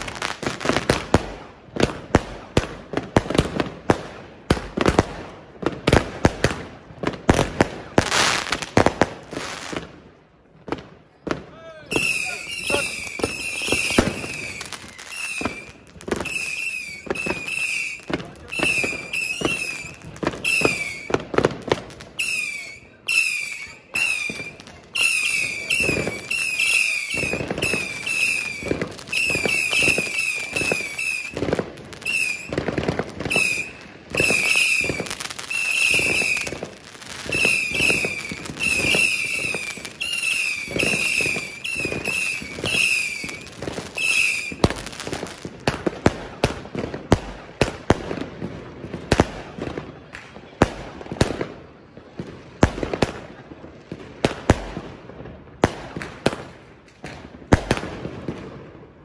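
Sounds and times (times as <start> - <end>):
whistling firework shots: 0.0 - 10.0, 10.7 - 58.9
firework bangs: 0.0 - 59.0.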